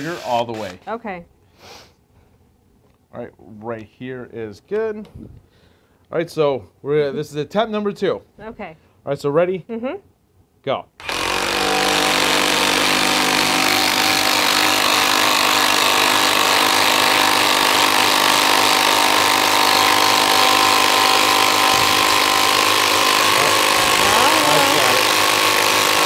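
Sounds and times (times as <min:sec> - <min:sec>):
impact drivers hammering whir: 0:11.0 - 0:26.0.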